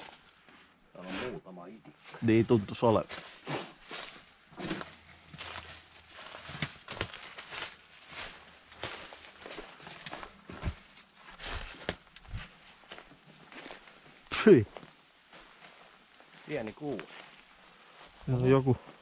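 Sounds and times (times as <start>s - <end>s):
footsteps crunching on rough ground: 1.9s - 19.0s.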